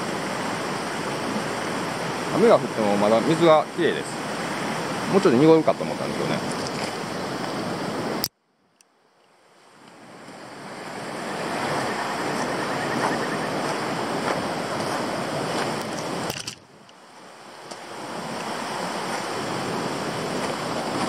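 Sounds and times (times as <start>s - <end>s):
river water rushing: 0.0s - 8.3s, 9.0s - 21.0s
wind on microphone: 10.0s - 16.8s.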